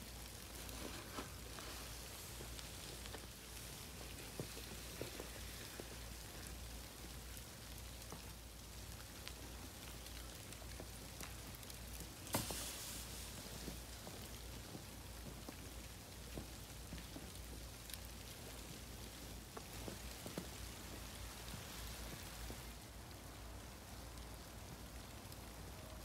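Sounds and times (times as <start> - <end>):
dog pawing crunching snow: 0.5 - 5.9.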